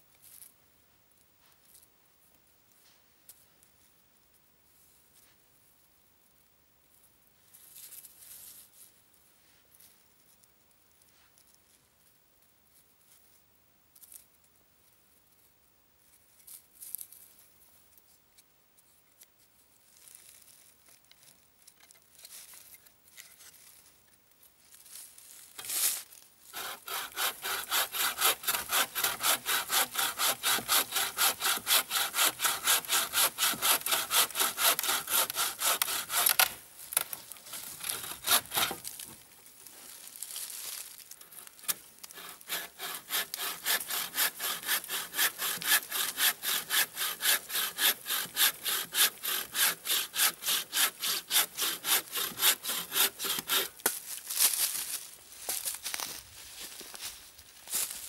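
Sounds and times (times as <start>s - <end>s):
saw cutting through log: 26.5s - 36.6s, 37.5s - 38.9s, 42.0s - 53.8s.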